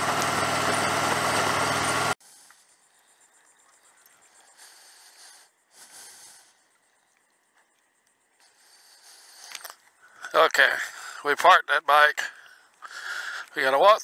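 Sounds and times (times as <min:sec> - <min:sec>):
motorcycle engine running: 0:00.0 - 0:02.2.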